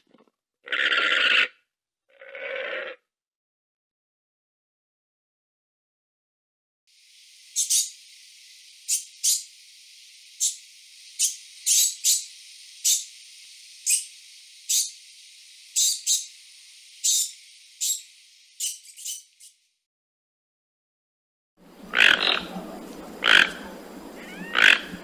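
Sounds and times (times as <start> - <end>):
steady hiss: 6.9 - 19.4, 21.6 - 25.0
degu high-pitched chirps: 18.6 - 19.5.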